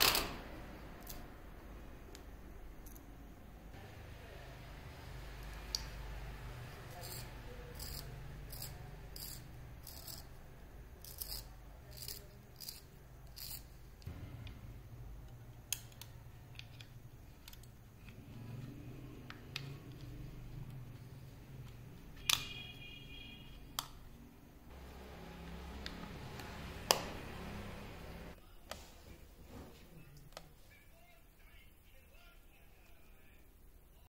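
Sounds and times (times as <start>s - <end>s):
pencil sharpener scraping: 6.8s - 10.4s, 11.0s - 13.8s.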